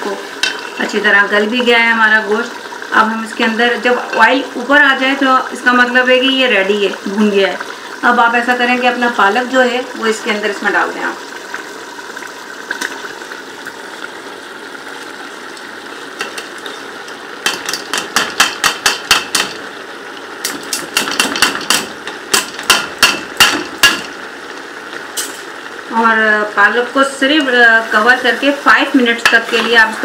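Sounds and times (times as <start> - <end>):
frying sizzle: 0.0 - 30.0
wooden spoon tapping metal pot: 17.4 - 19.6, 20.4 - 24.1.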